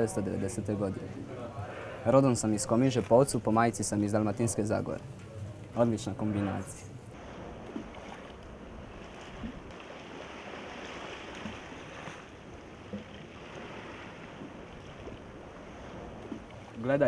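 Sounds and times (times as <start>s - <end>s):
sea lapping at pebble beach: 6.1s - 17.0s.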